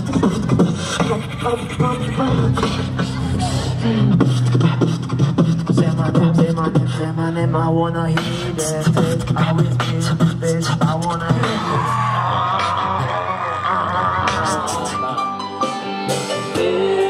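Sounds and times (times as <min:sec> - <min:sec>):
beatboxing mouth beats: 0:00.0 - 0:07.3, 0:08.0 - 0:15.1
humming bass line: 0:00.0 - 0:15.2
pitched vocal phrases: 0:01.1 - 0:04.5, 0:06.0 - 0:15.2.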